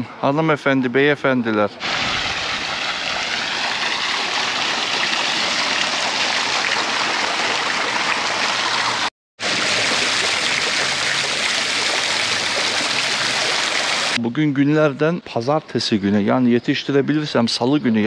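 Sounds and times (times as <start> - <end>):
stream water rushing: 1.8 - 14.2.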